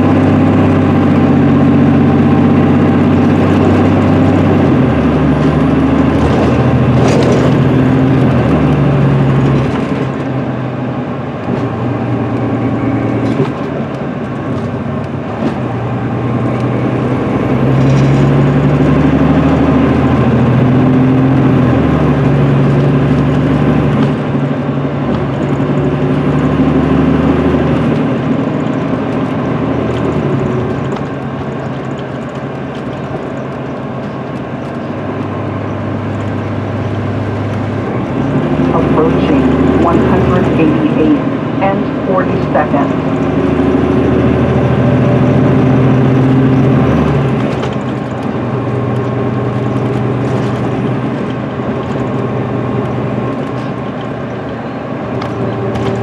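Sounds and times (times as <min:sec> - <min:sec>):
diesel coach engine running: 0:00.0 - 0:56.0.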